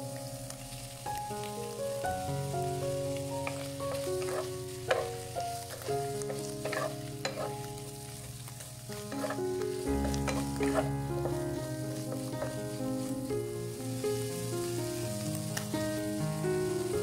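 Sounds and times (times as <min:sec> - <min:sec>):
food sizzling in a wok: 0:00.0 - 0:17.0
soft background music: 0:00.0 - 0:17.0
spatula scraping a pan: 0:03.4 - 0:12.8.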